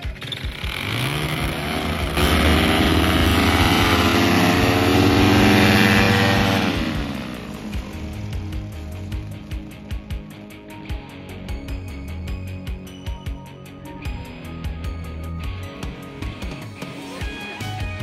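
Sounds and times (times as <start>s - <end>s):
paramotor engine and propeller: 0.0s - 11.1s.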